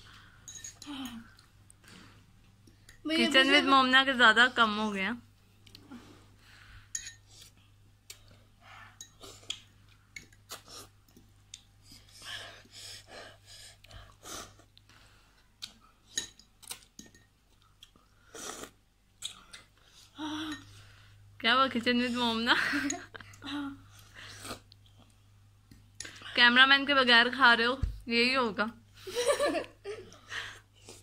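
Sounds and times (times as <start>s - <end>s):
people chewing: 0.1s - 3.0s, 5.4s - 21.2s, 22.7s - 26.3s, 29.9s - 31.0s
cutlery clicking against glass bowls: 0.5s - 1.2s, 16.1s - 17.3s.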